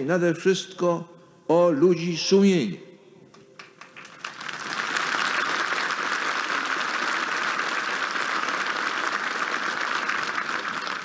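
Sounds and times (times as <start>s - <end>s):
crowd applauding: 3.6s - 11.0s.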